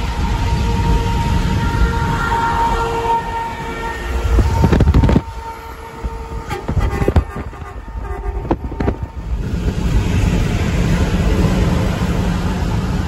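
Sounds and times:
highway road noise: 0.0 - 13.0
loud rush of noise: 0.0 - 13.0
truck air horn blasting: 0.2 - 9.3.

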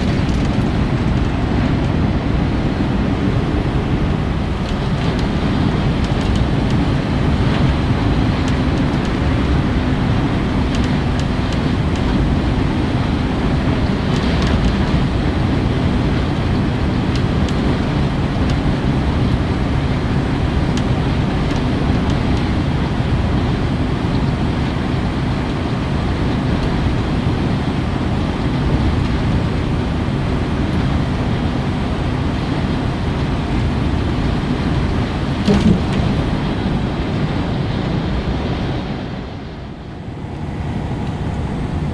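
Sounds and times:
steady low hum: 0.0 - 41.9
truck engine drone: 0.0 - 41.9.

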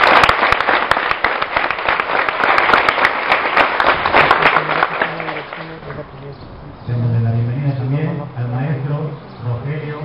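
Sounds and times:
crowd applauding: 0.0 - 6.0.

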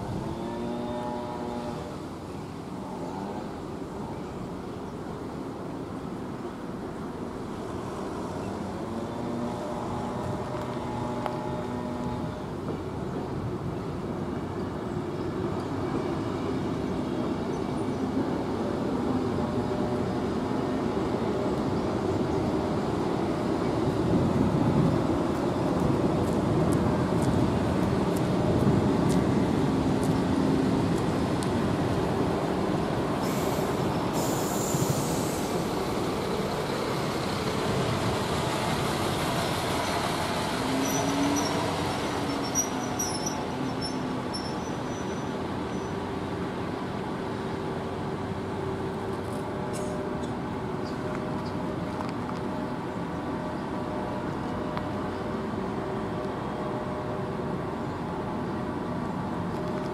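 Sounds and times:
bus pulling up: 0.0 - 59.9
train wheels rumbling: 5.5 - 59.9
bus brake hiss: 33.2 - 35.9.

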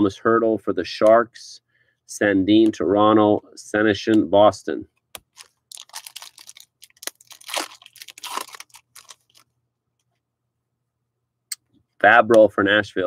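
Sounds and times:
foil wrapper tearing and crinkling: 5.2 - 9.4.

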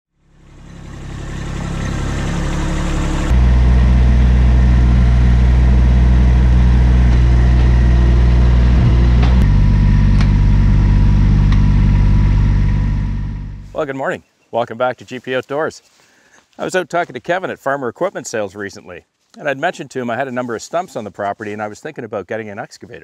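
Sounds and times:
tractor diesel engine idling: 0.2 - 13.8.

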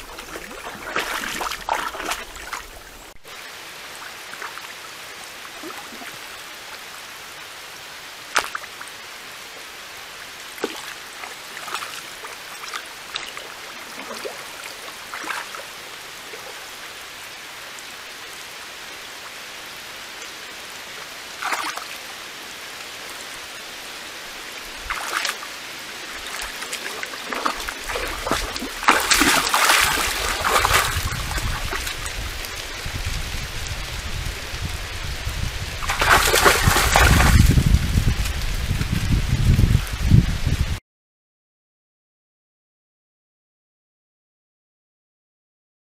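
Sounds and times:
deer splashing through water: 0.0 - 3.0, 10.5 - 16.5, 21.4 - 22.0, 24.7 - 32.7, 35.8 - 37.8
water drips: 0.0 - 3.2, 10.4 - 16.7, 24.6 - 32.8, 35.8 - 37.6
faint steady hiss: 0.0 - 35.9.

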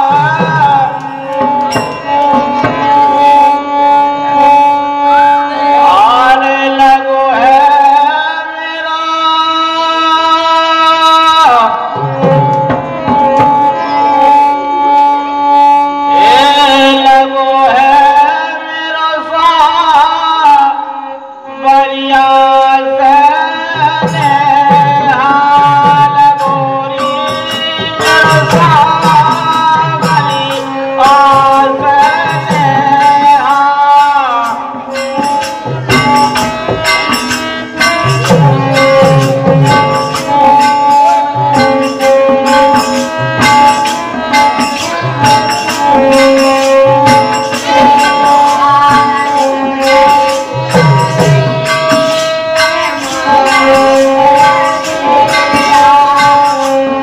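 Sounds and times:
hand drum beats: 0.0 - 3.3, 11.9 - 14.3, 23.7 - 33.5, 34.5 - 57.0
jingling small percussion: 0.0 - 6.8, 11.3 - 18.2, 22.3 - 57.0
harmonium melody: 0.0 - 57.0.

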